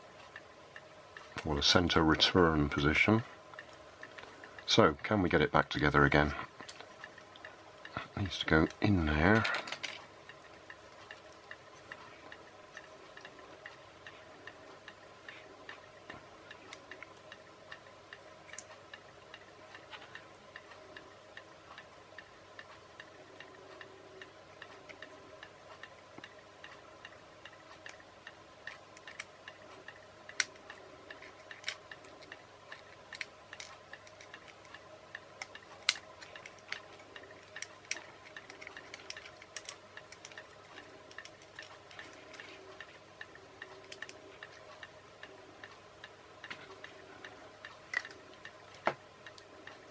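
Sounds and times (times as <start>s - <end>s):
faint steady hum: 0.0s - 49.9s
plastic parts clicking and tapping: 9.2s - 10.1s, 28.7s - 34.8s, 35.4s - 43.0s.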